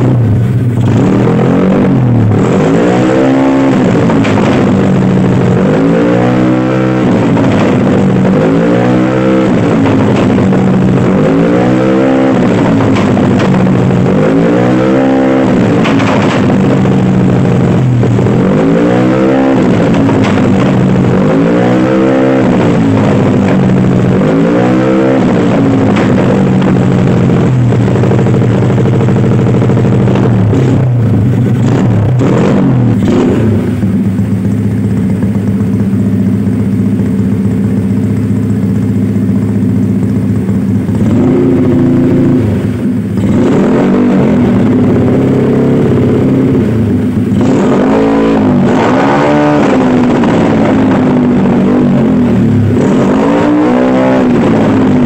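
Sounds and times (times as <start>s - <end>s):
exhaust backfire pops: 0.0s - 55.0s
motorcycle engine revving: 0.0s - 55.0s.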